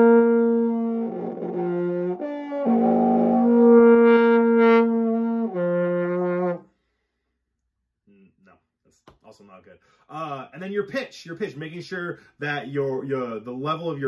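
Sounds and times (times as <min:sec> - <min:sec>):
trombone long unsteady note: 0:00.0 - 0:06.6.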